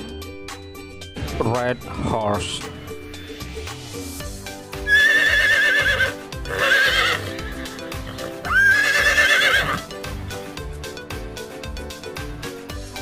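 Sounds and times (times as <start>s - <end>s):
background music: 0.0s - 13.0s
horses whinnying: 4.8s - 9.9s.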